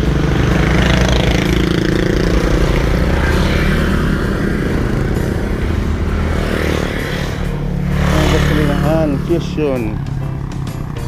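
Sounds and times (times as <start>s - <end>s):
road and wind noise: 0.0s - 11.0s
vehicle engine hum: 0.0s - 11.0s.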